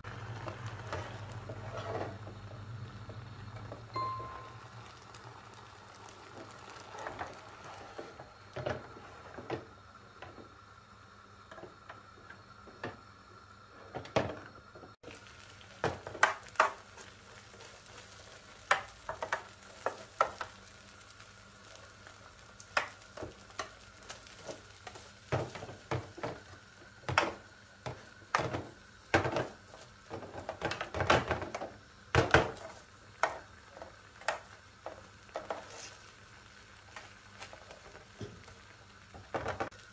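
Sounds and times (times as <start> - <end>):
pudding boiling and sizzling: 0.0 - 39.9.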